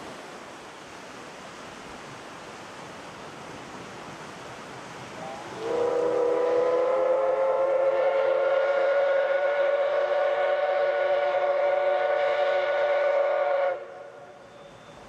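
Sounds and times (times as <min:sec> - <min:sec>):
steam locomotive whistle: 0:05.2 - 0:15.0.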